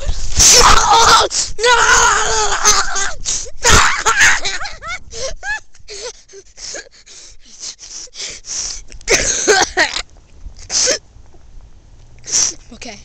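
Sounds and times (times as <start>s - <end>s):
boy panting: 1.2s - 1.7s, 3.2s - 3.6s, 4.6s - 9.8s, 10.6s - 11.0s, 12.2s - 12.8s.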